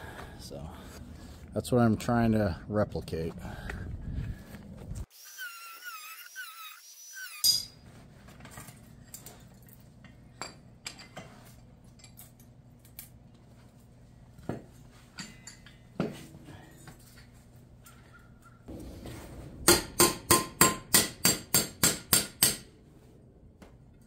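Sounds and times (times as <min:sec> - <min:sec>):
metal tools clinking: 0:15.1 - 0:18.2.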